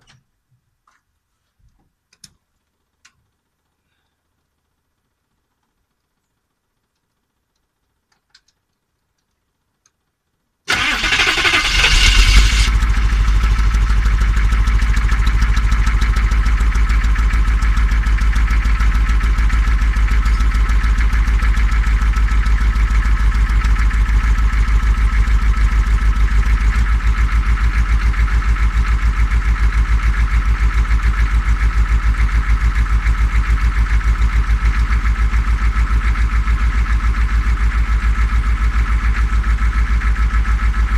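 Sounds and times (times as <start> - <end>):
diesel engine starting and idling: 10.7 - 40.9.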